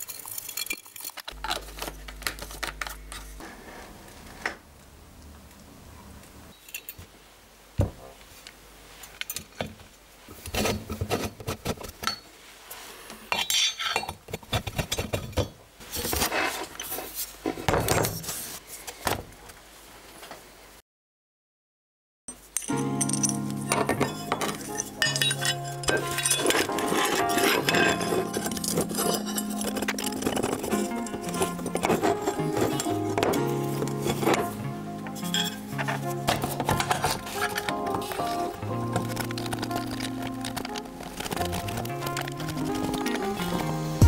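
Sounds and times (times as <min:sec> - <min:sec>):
metal bracket and tools clinking: 0:22.3 - 0:40.8.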